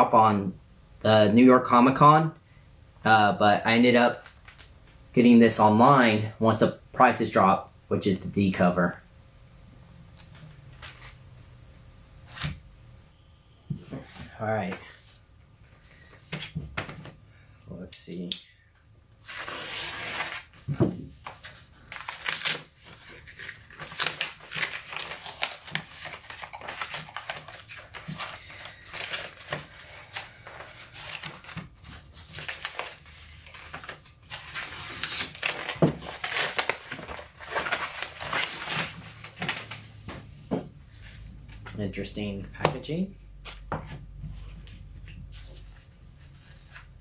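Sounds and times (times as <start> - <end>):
packaging crinkling and rustling: 21.2 - 40.2.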